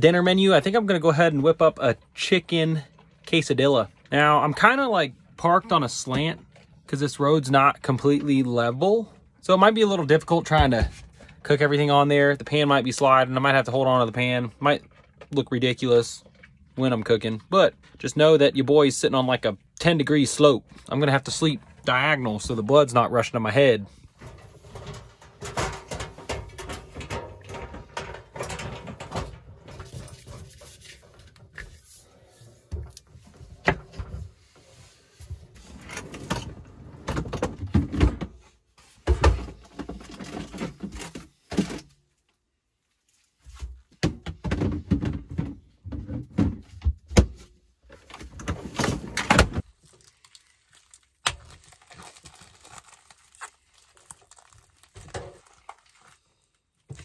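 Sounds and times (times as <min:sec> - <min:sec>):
clunks and knocks: 0:24.1 - 0:31.7, 0:35.4 - 0:38.4, 0:43.6 - 0:49.6
drawer sliding: 0:24.2 - 0:38.3
plastic wrap rustling: 0:49.6 - 0:57.0.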